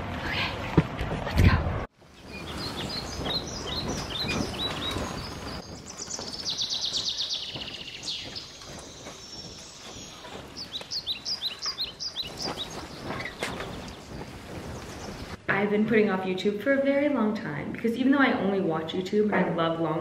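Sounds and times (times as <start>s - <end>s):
songbirds chirping and trilling: 2.0s - 15.4s.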